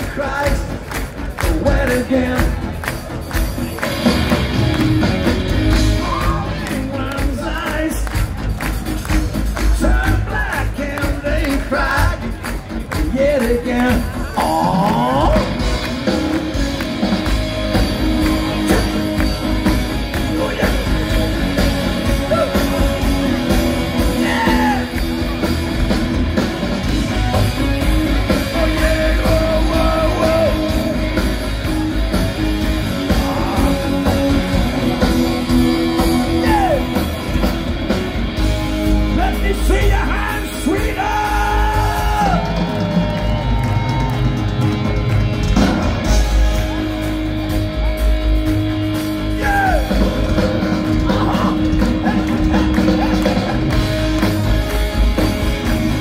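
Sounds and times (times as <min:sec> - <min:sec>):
man singing: 0:00.0 - 0:02.8, 0:06.0 - 0:08.2, 0:09.7 - 0:12.4, 0:13.0 - 0:15.6, 0:24.0 - 0:25.0, 0:28.3 - 0:31.2, 0:32.9 - 0:37.0, 0:39.2 - 0:42.5
live rock band playing: 0:00.0 - 0:56.0.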